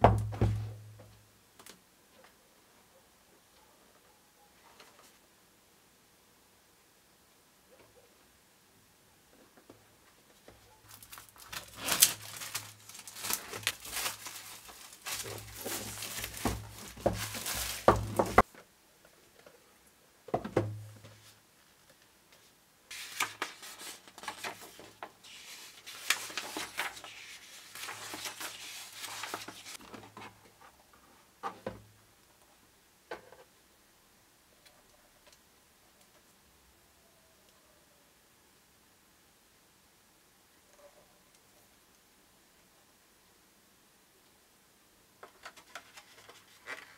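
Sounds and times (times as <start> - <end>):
plastic wrap crinkling and tearing: 10.8 - 18.4, 22.9 - 29.8, 45.4 - 46.9.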